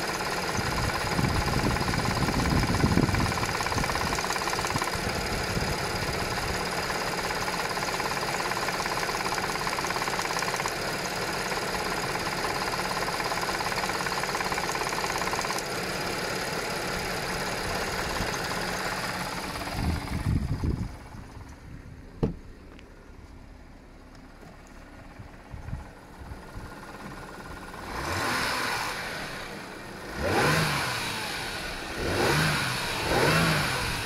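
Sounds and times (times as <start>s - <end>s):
car engine idling: 0.0s - 34.0s
fast engine rattle: 0.0s - 34.0s.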